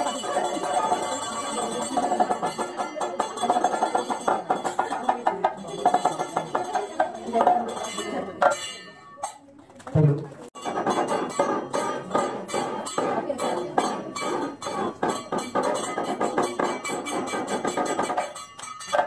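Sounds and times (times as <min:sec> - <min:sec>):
rapid metallic clinking: 0:10.6 - 0:19.0.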